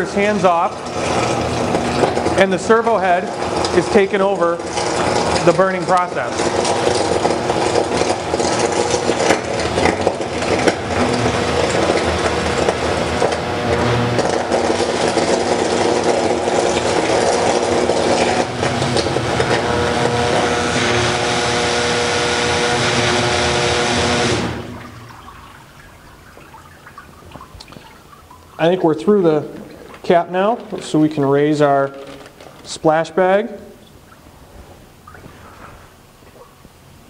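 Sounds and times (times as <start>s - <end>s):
loud buzzing hiss with hum: 12.3s - 24.8s.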